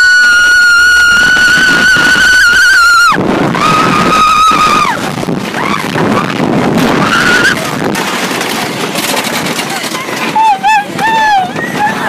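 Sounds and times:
rider screaming: 0:00.0 - 0:07.8
roller coaster rumble and wind: 0:00.0 - 0:12.0.

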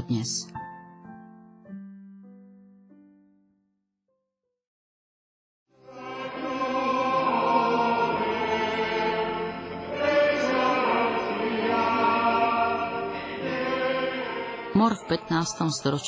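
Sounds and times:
congregation singing a hymn: 0:05.8 - 0:16.0.

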